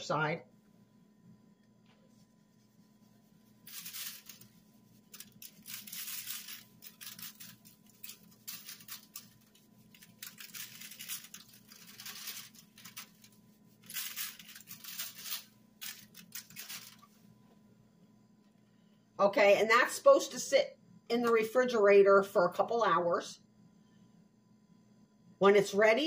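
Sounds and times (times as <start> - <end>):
salt granules pattering from shaker: 3.4 - 17.0.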